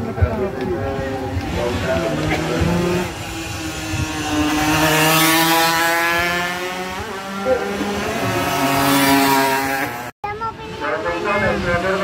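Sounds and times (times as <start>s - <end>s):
racing motorcycle engines buzzing: 0.0s - 12.0s.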